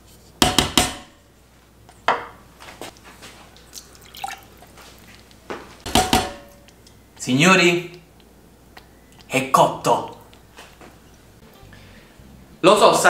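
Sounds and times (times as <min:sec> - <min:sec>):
wooden spoon knocking on pot: 0:05.9 - 0:06.6.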